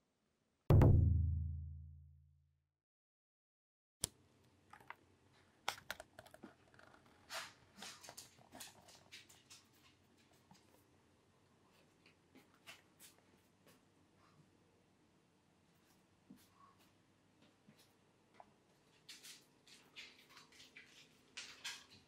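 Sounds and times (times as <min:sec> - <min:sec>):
deep booming music hit: 0:00.7 - 0:01.9
dog claws on wooden floor: 0:05.7 - 0:10.8, 0:18.8 - 0:22.0.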